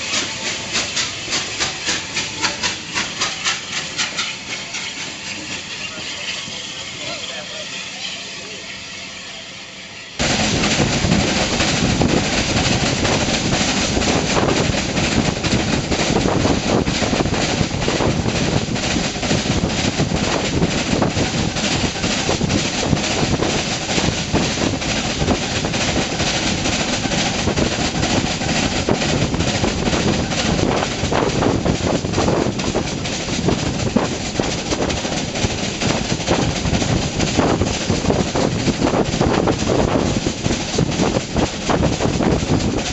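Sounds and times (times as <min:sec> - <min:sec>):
train wheels on rails: 0:00.0 - 0:42.9
air rushing on microphone: 0:10.2 - 0:42.9.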